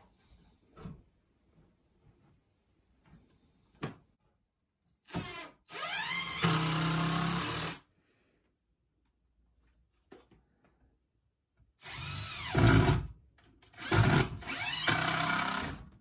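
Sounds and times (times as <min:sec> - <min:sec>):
cordless drill drilling into wood: 0:05.0 - 0:07.8, 0:11.8 - 0:13.0, 0:13.8 - 0:15.8.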